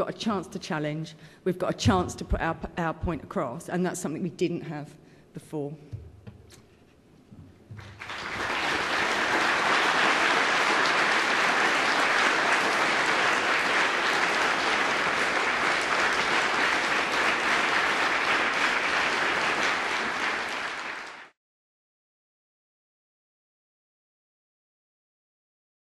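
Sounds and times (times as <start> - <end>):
audience applauding: 7.7 - 21.4.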